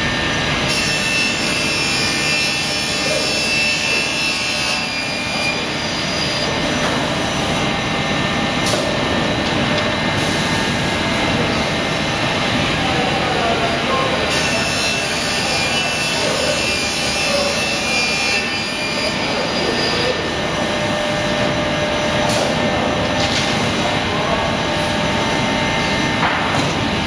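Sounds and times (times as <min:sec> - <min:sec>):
machine hum: 0:16.4 - 0:27.0.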